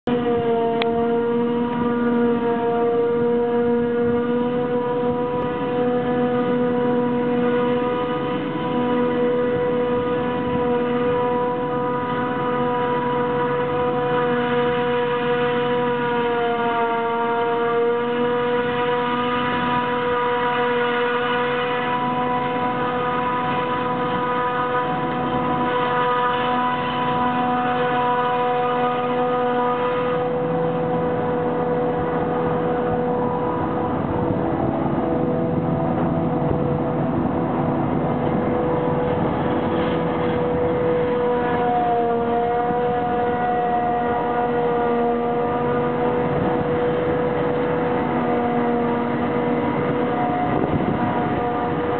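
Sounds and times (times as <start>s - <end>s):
engines droning: 0.0s - 51.9s
high-pitched machine whine: 0.0s - 51.9s
forage harvester chopping grass: 12.4s - 51.9s.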